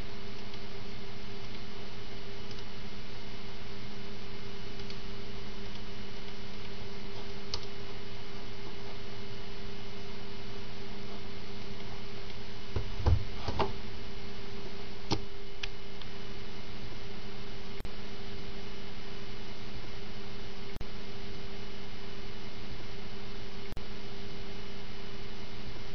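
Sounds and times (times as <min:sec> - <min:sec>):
electrical hum and hiss: 0:00.0 - 0:25.9.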